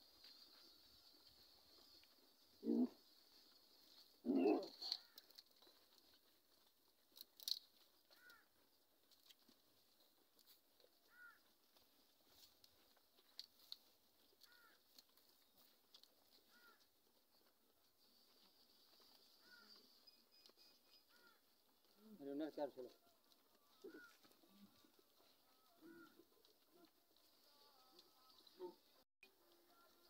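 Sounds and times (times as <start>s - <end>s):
bird chirping: 18.8s - 21.4s.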